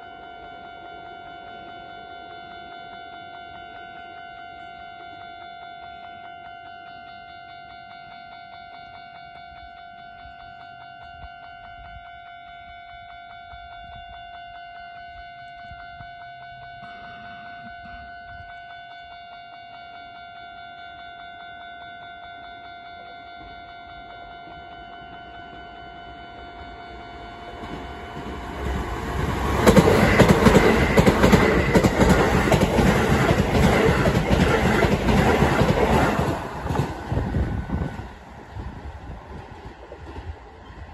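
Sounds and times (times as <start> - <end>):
level crossing alarm dinging: 14.7 - 37.4.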